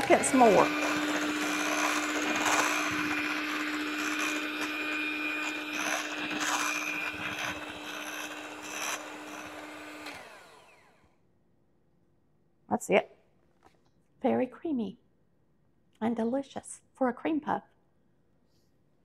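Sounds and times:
electric hand mixer whipping cream: 0.0 - 11.1.

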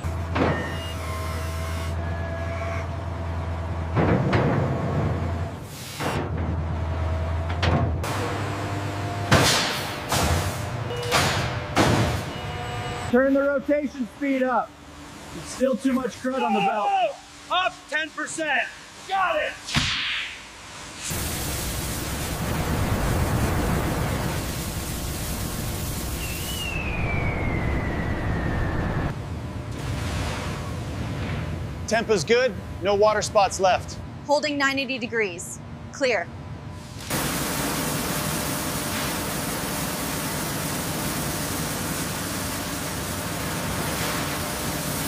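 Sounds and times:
high-pressure water jets spraying: 21.1 - 26.8, 37.0 - 45.0.

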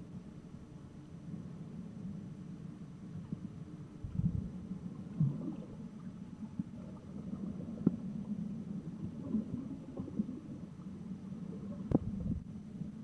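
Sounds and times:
underwater rumbling and gurgling: 0.0 - 13.0
small underwater clicks: 5.2 - 8.1, 11.5 - 12.5.

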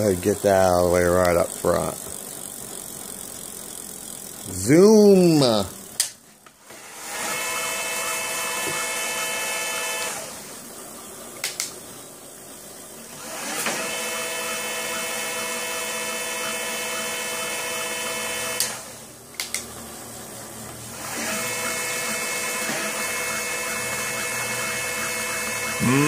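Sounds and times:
electric bike motor whining: 0.0 - 26.0
sharp clicks: 11.4 - 11.8, 19.4 - 19.7.

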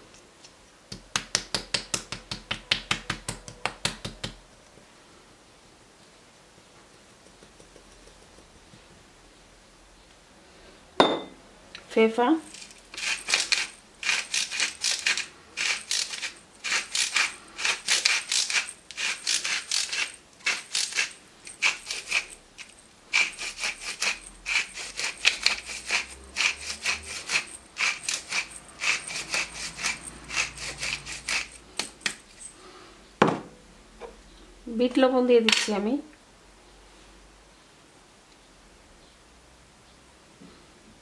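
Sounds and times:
pepper mill grinding clicks: 12.5 - 32.2.

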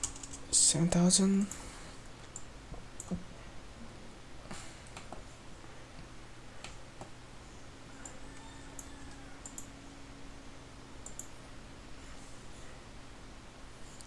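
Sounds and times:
faint steady hum: 0.0 - 14.0
computer mouse clicking: 2.2 - 3.2, 8.0 - 9.7, 11.0 - 11.3.

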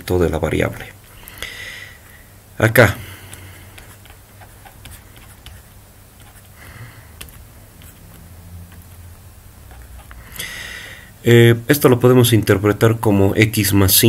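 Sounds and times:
low steady hum: 0.0 - 14.0
stylus ticking on pen tablet: 7.1 - 10.2.

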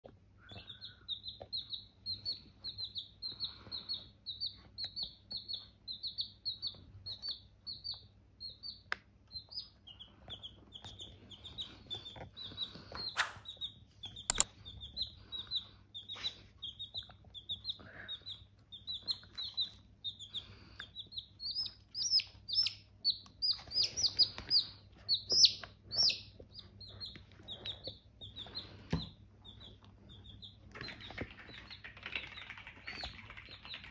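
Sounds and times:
chicks peeping: 0.0 - 33.9
sharp clicks: 14.2 - 14.5.

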